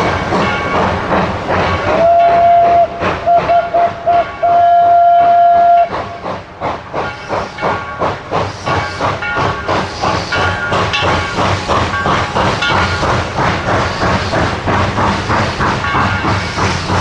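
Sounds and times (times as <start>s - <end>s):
steam hissing: 0.0s - 17.0s
steam locomotive whistle: 1.9s - 6.3s.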